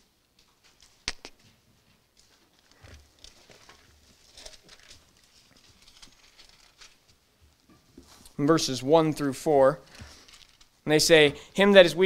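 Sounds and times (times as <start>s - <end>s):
soft paper flicks: 2.2s - 7.2s
book pages rustling: 2.2s - 8.4s, 9.9s - 10.8s.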